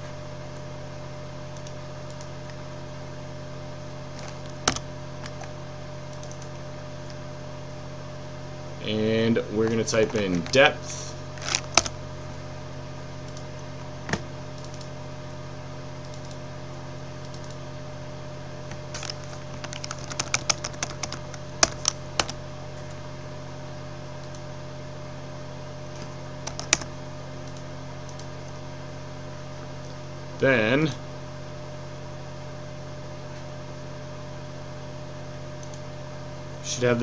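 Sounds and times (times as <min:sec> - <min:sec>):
low electrical hum: 0:00.0 - 0:37.0
keyboard typing: 0:04.2 - 0:05.5, 0:11.4 - 0:11.9, 0:18.9 - 0:22.4, 0:26.4 - 0:26.9.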